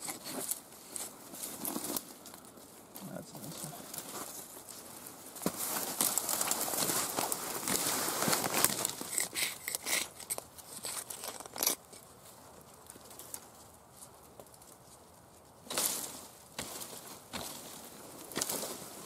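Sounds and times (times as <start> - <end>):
dry canes rustling and crackling: 0.0 - 19.0.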